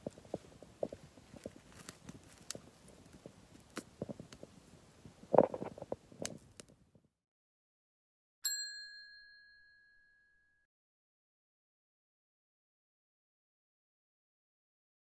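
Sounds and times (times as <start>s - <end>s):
faint crackling and knocks: 0.0s - 6.8s
bright bell ding: 8.4s - 10.7s.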